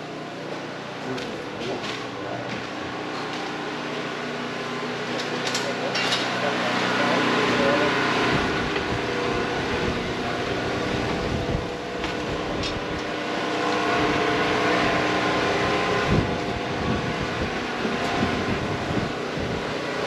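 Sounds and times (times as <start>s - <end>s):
droning hum: 0.0s - 20.0s
wind rushing over microphone: 8.3s - 13.0s, 14.8s - 19.7s.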